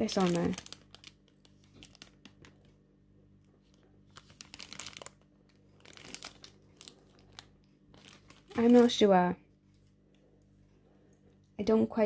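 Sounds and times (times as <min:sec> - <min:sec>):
plastic packaging crinkling: 0:00.0 - 0:02.8, 0:03.6 - 0:09.3.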